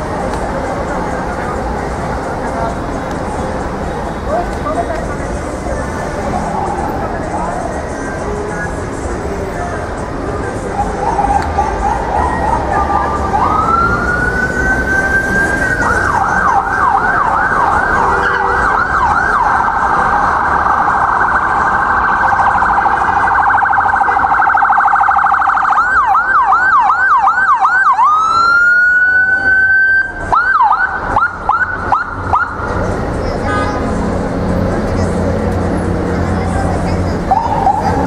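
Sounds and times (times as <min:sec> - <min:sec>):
ambulance siren: 0:05.4 - 0:09.1, 0:10.5 - 0:33.0, 0:37.1 - 0:38.0.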